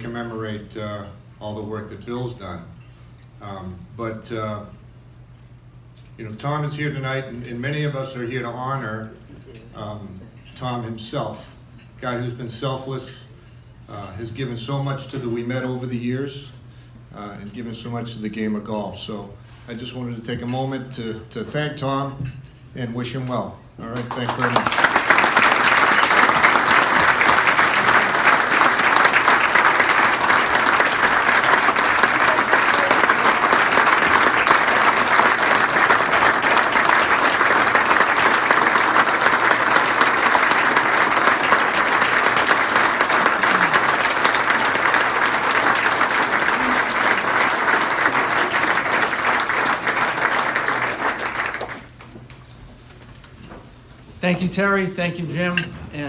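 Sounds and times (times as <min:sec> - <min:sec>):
crowd applauding: 0:24.0 - 0:52.1.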